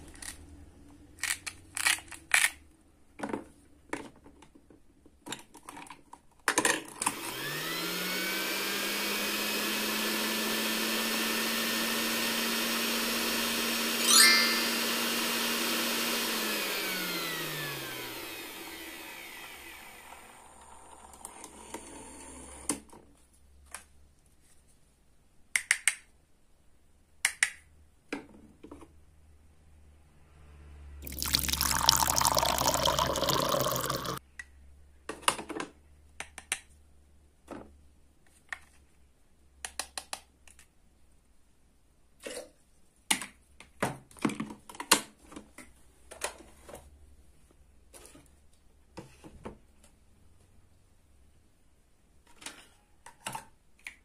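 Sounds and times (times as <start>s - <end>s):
plastic toy parts clicking: 1.2s - 2.6s
toy mixer motor winding down: 7.0s - 21.6s, 31.0s - 34.2s
liquid pouring into plastic cup: 31.0s - 34.2s.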